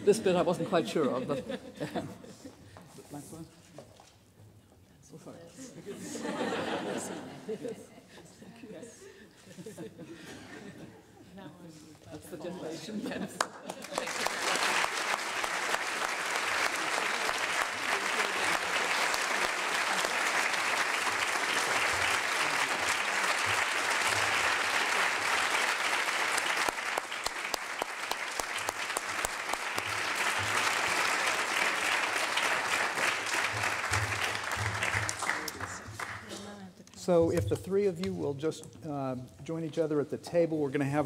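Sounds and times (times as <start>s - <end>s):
audience applauding: 13.4s - 36.5s.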